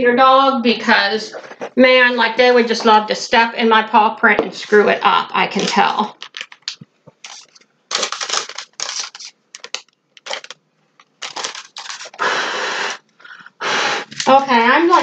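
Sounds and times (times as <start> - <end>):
person blowing short puffs: 12.1 - 14.4.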